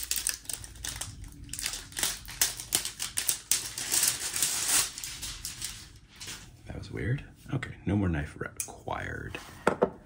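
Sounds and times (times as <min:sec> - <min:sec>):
plastic packaging clicking and rustling: 0:00.0 - 0:06.4.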